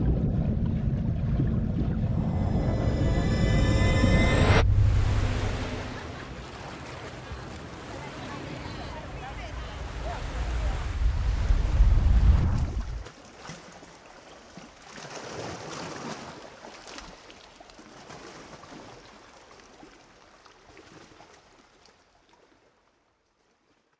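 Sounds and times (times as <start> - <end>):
deep rumble: 0.0 - 6.9, 9.6 - 13.0
water flowing and lapping: 0.0 - 23.9
small splashes and drips: 13.0 - 23.9.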